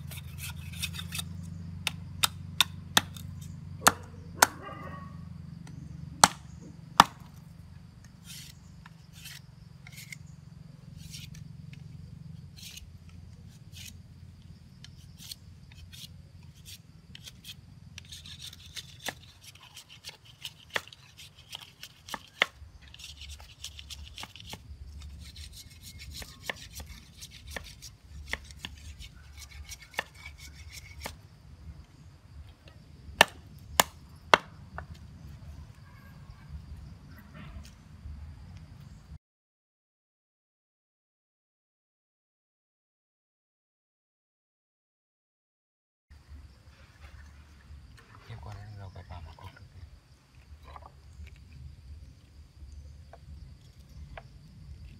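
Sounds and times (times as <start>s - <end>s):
blade scraping bamboo: 0.0s - 4.0s, 8.0s - 31.3s
machete chopping bamboo on wood: 0.0s - 4.6s, 5.6s - 7.4s, 14.8s - 31.2s, 33.2s - 35.0s.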